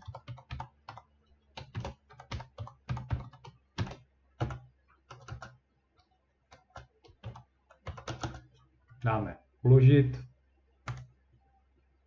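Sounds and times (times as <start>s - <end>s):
keyboard keystroke clicks: 10.8s - 11.1s.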